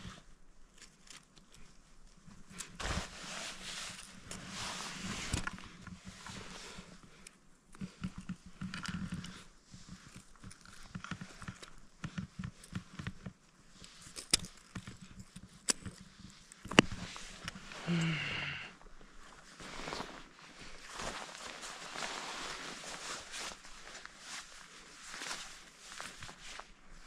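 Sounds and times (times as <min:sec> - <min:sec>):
clicks and scrapes: 0:07.2 - 0:17.7.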